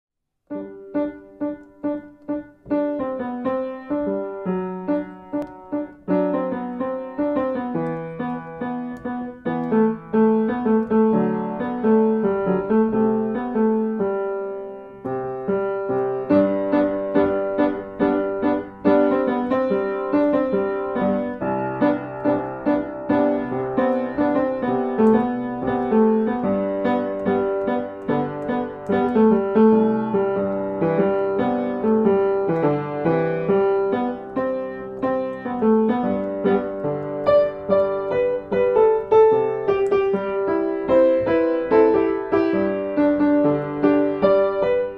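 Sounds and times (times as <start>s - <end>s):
solo piano music: 0.3s - 44.9s.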